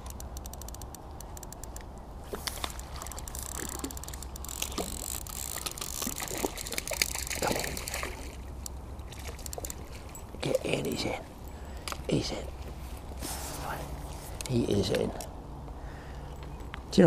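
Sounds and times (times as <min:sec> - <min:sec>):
light ticks: 0:00.0 - 0:02.0, 0:11.8 - 0:12.7
fish splashing in water: 0:02.3 - 0:10.2.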